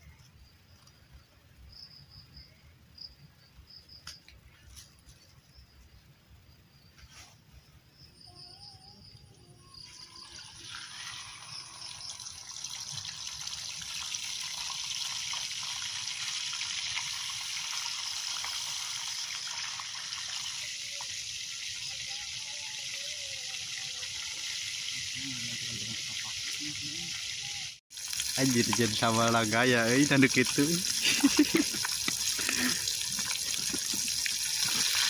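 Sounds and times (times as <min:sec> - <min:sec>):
food sizzling in a pan: 0:09.8 - 0:35.0.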